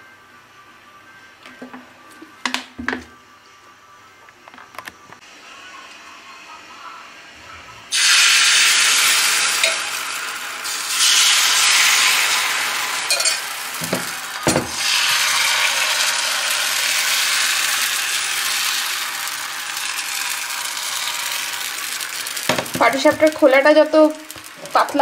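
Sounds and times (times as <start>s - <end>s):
batter sizzling in a frying pan: 7.9s - 25.0s.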